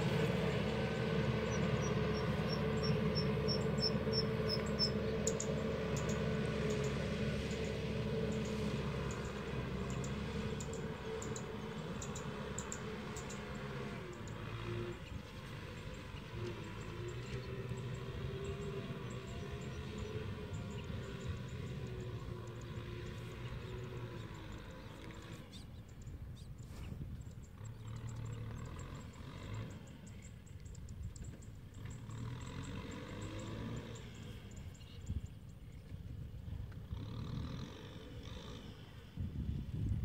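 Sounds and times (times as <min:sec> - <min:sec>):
distant tractor engine: 0:00.0 - 0:40.0.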